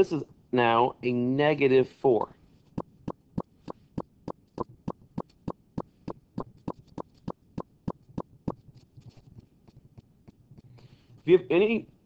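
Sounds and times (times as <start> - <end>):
steady sharp ticking: 2.7 - 11.8.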